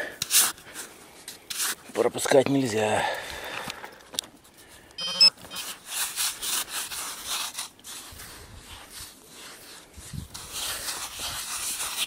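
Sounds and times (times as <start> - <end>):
digging in dry sand: 0.0 - 2.8, 5.6 - 12.0
pinpointer buzzing tone: 5.0 - 5.6.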